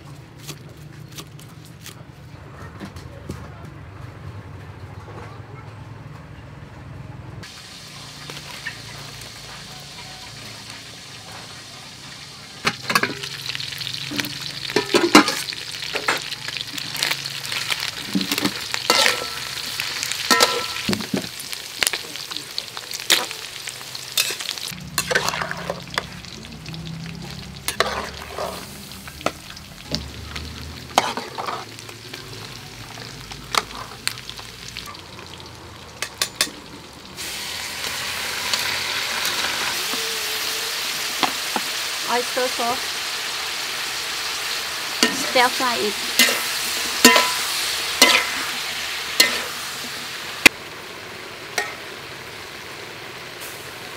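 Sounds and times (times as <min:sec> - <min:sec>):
food sizzling in wok: 0:07.4 - 0:53.9
metal spoon clinking in pot: 0:20.3 - 0:20.9, 0:47.0 - 0:48.3.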